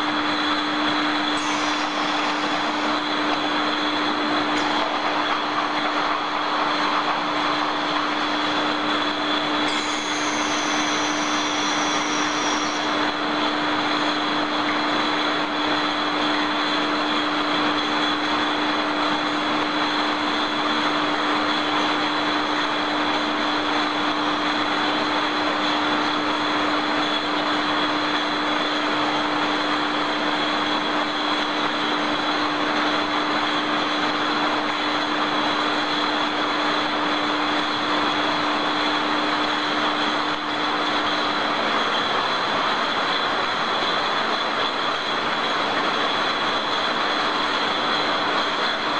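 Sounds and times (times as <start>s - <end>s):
machinery hiss: 0.0s - 15.8s
high machinery whine: 0.0s - 48.9s
low machinery hum: 0.0s - 48.9s
high whistle sliding down: 9.7s - 13.2s.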